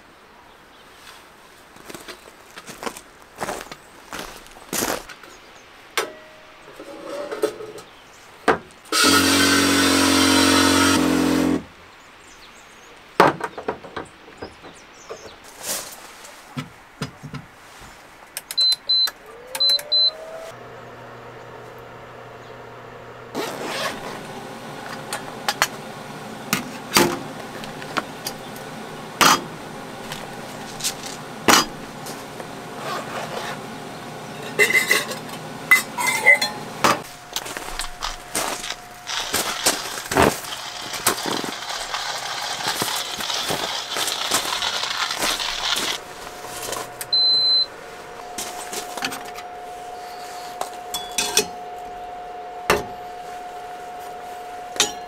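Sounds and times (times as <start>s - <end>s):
short electronic beeps: 18.6s - 20.4s, 47.1s - 47.7s
rising tone into low hum: 19.1s - 23.4s, 36.8s - 54.8s
water spraying into metal kettle: 38.8s - 46.0s.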